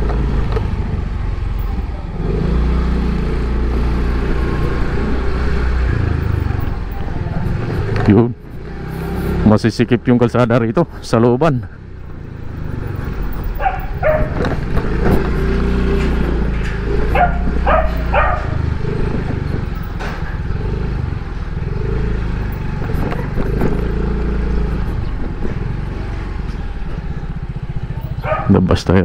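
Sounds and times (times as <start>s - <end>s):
motorcycle engine running: 0.0s - 29.0s
dog barking: 13.6s - 14.4s, 17.1s - 18.7s, 28.2s - 28.6s.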